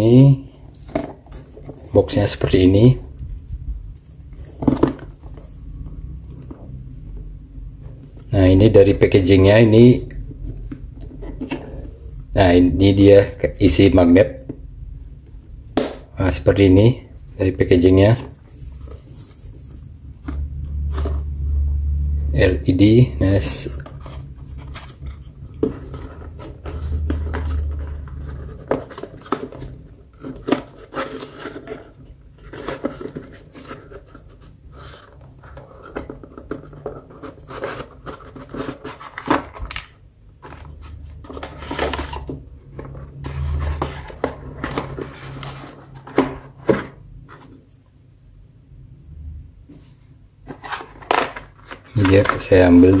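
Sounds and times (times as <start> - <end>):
packaging rustling: 23.6 - 47.0, 50.5 - 53.0.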